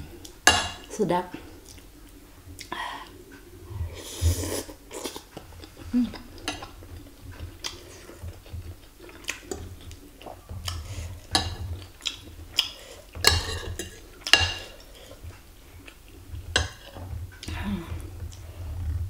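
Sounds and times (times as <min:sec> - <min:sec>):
cutlery clinking on ceramic bowl: 0:13.2 - 0:14.8.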